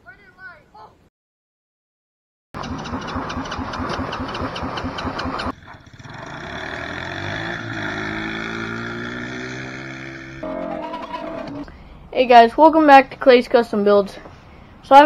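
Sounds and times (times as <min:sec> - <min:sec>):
go-kart engine revving: 0:02.6 - 0:11.7.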